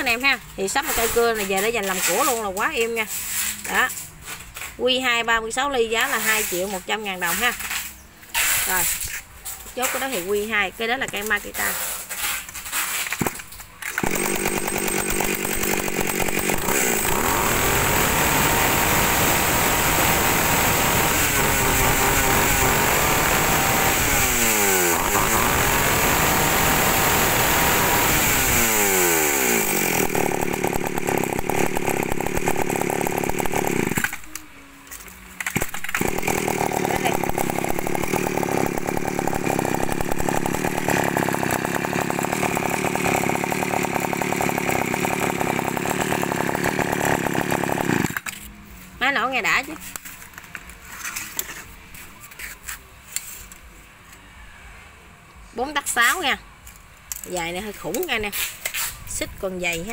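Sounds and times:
chainsaw engine running: 0:13.2 - 0:48.4.

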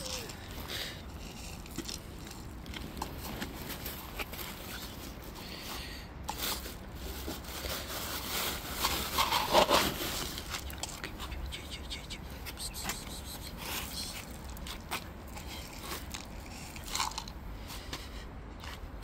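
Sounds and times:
cats crunching dry kibble: 0:00.0 - 0:19.0.

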